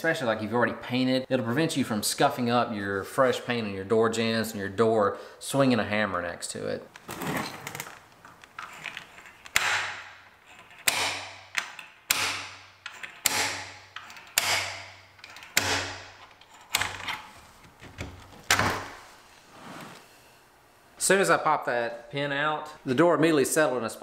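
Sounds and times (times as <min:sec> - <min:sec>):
sharp metallic snaps: 0:09.4 - 0:16.4.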